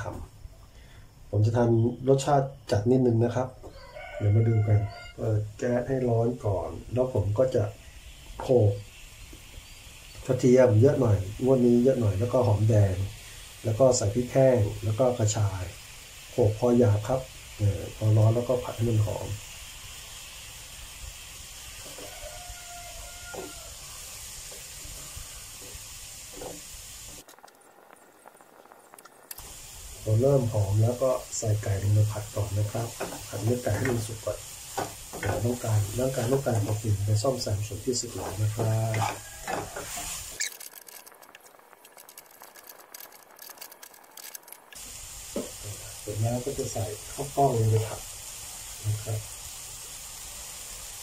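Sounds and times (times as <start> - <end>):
paste sizzling in a pan: 2.2 - 51.0
spatula scraping and tapping pan: 32.9 - 34.1, 34.7 - 36.9, 38.2 - 40.6.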